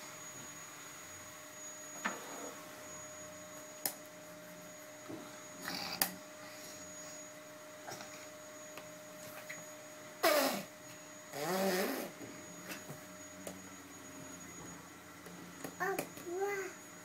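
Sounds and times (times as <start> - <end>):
faint electrical hum: 0.0 - 17.0.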